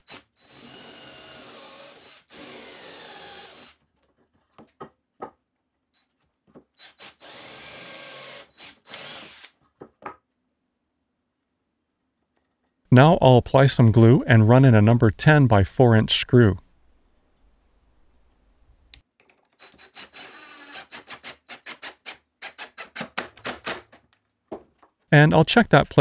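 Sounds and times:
cordless drill countersinking wood: 0.0 - 3.8, 6.8 - 9.6, 19.2 - 23.9
small clicks and knocks: 18.9 - 19.6.

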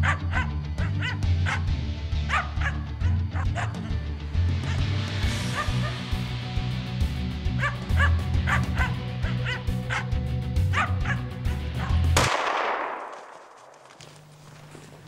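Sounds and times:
dog barking: 0.0 - 4.0, 4.6 - 6.1, 7.5 - 12.1
rifle shot echoing: 12.2 - 13.8.

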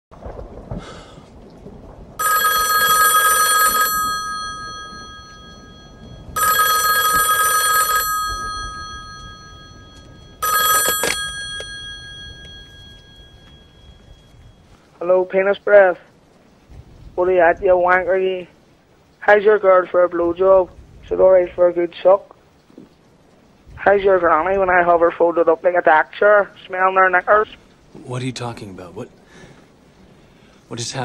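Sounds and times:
desk telephone ringing: 2.2 - 14.6
telephone clicks: 10.4 - 11.8.

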